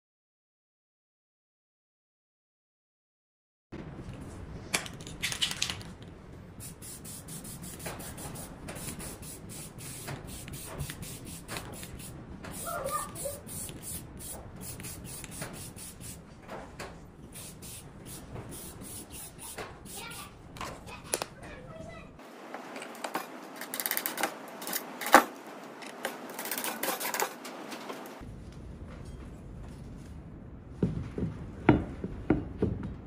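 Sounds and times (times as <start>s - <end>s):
spray can hissing bursts: 6.6s - 16.2s, 17.3s - 20.3s.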